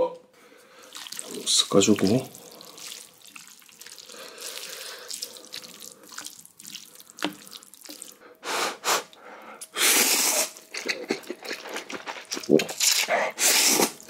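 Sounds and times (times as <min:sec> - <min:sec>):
noodles sloshing in broth: 0:00.6 - 0:08.2.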